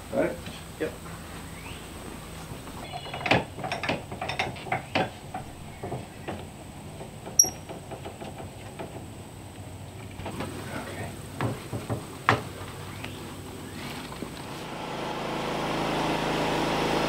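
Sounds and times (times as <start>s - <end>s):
wooden and metal knocks: 2.8s - 9.1s, 11.4s - 12.5s
sharp metallic ping: 7.4s - 7.7s.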